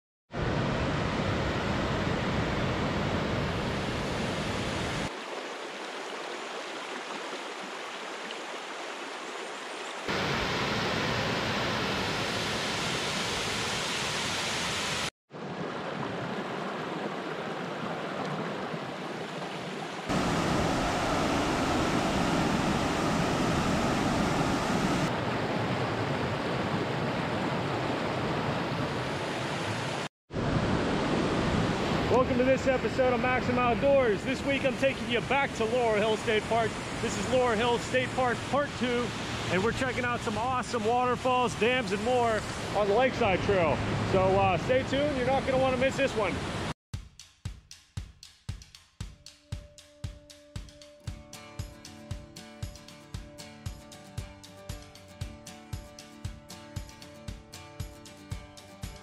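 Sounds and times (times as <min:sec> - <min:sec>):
rushing water: 0:00.3 - 0:46.8.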